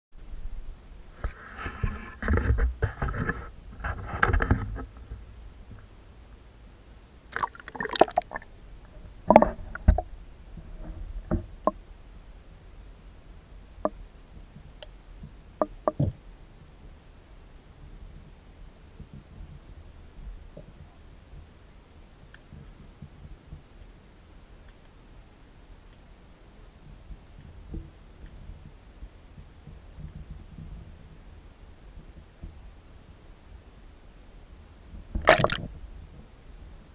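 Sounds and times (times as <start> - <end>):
water sloshing: 7.3 - 8.5, 35.2 - 35.7.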